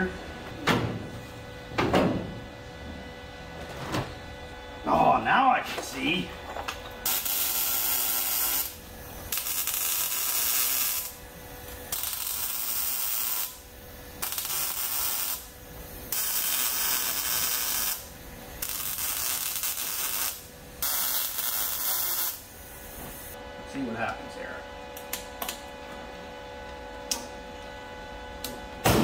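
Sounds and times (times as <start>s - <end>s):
arc welding: 6.9s - 23.4s.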